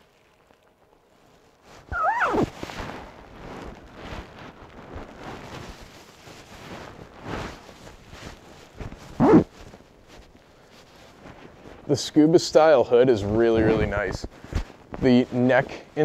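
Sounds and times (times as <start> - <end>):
nylon jacket rustling: 1.6 - 12.0
jacket zipper zipped up: 1.9 - 3.0, 9.1 - 9.6.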